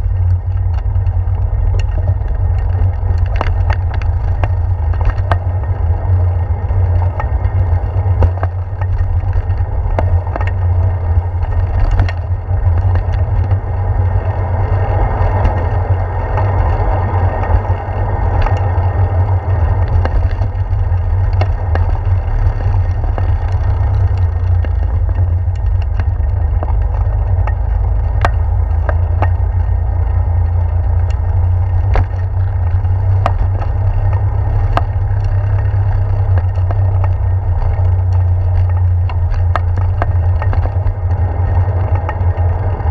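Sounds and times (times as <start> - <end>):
bicycle tyre noise: 0.0 - 42.9
sharp clicks and light clatter: 0.0 - 42.9.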